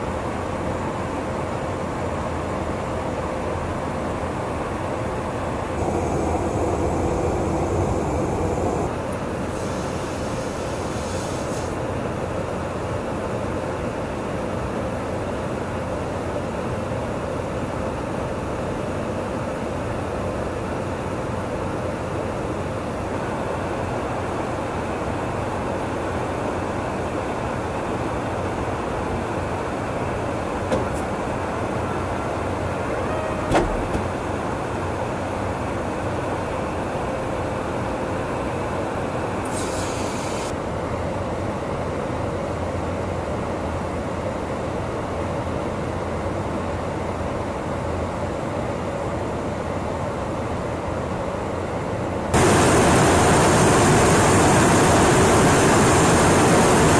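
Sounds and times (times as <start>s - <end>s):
aircraft cabin drone: 0.0s - 42.4s, 49.3s - 56.9s
faint steady hum: 5.6s - 11.7s.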